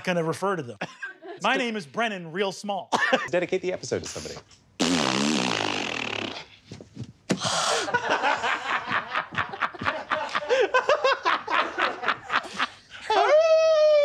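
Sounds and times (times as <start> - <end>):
man laughing in rapid pulses: 7.6 - 14.0.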